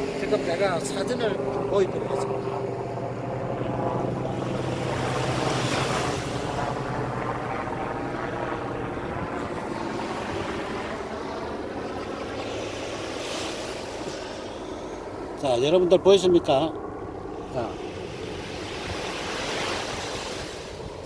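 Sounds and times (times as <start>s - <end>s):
small waves washing on sand: 4.5s - 6.8s, 12.4s - 14.6s, 17.4s - 21.0s.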